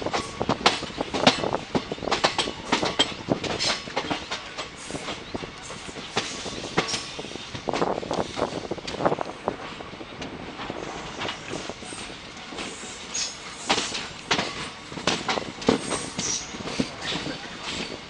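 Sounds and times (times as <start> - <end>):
train running noise: 0.0 - 18.0
wheels clacking on rails: 0.0 - 18.0.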